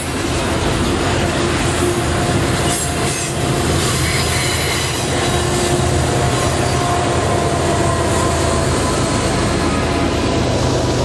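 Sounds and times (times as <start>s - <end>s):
diesel engine drone: 0.0s - 11.0s
wheels grinding and squealing on rails: 0.0s - 11.0s.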